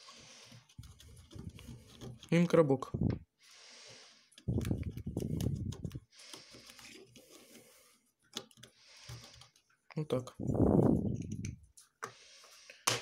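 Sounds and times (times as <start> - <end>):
fingers rubbing plastic: 0.5 - 2.4, 4.4 - 7.7.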